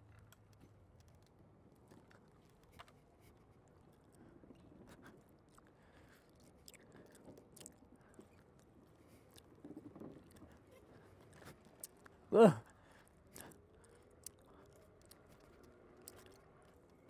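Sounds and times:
faint clicks and crackles: 0:00.0 - 0:17.0.

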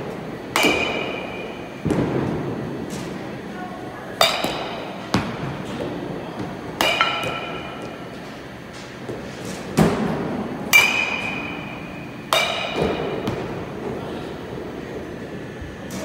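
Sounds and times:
baseball bat hitting ball: 0:00.5 - 0:02.4, 0:04.2 - 0:05.5, 0:06.8 - 0:08.0, 0:09.8 - 0:13.6.

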